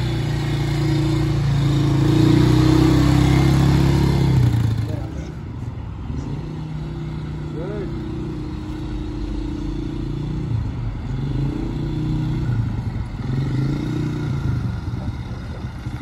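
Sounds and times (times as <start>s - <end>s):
quad bike engine revving: 0.0s - 5.4s, 6.1s - 16.0s.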